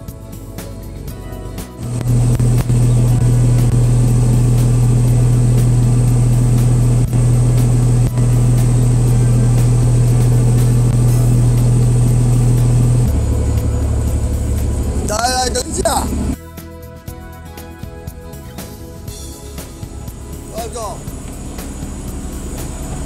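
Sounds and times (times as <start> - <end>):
boat engine humming: 1.1 - 16.4, 18.4 - 23.0.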